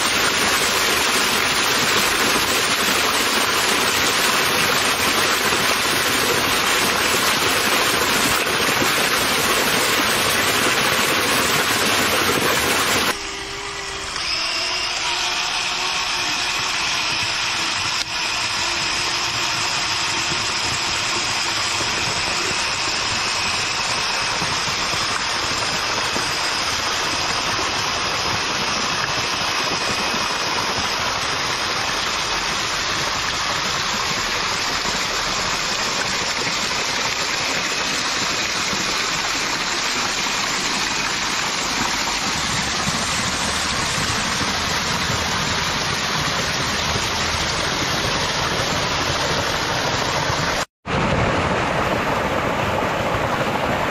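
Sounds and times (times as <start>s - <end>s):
water gushing onto paddle wheel: 0.0s - 53.9s.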